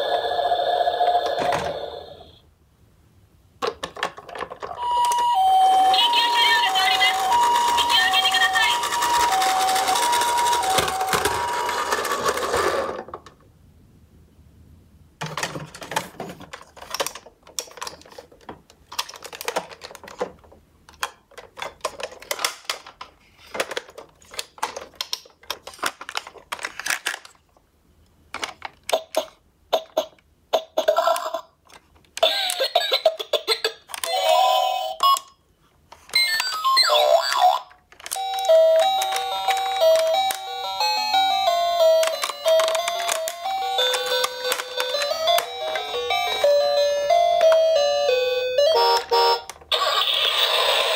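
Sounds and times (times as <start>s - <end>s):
plastic toy clicks and knocks: 3.6s - 5.2s, 7.0s - 13.4s, 15.2s - 27.4s, 28.3s - 34.3s, 35.0s - 40.6s, 41.5s - 46.4s.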